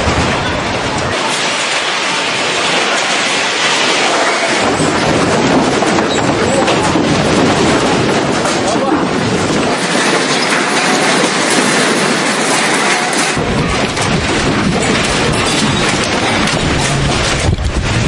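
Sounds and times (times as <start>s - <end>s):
building rattling in earthquake: 0.0s - 18.0s
deep rumble: 0.0s - 18.0s.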